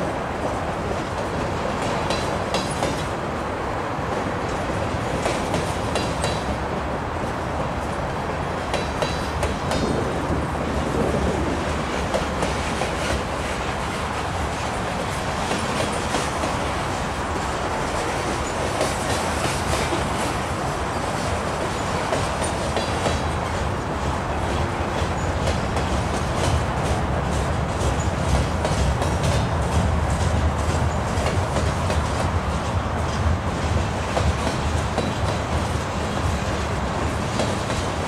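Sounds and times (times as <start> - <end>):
train wheels rumbling on rails: 0.0 - 38.0
wheels clicking over rail joints: 0.5 - 3.2, 4.4 - 6.6.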